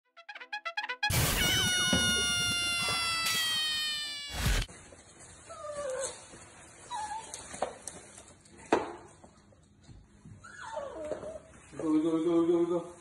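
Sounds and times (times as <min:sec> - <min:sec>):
puppy whining: 0:05.4 - 0:07.6, 0:10.3 - 0:11.7.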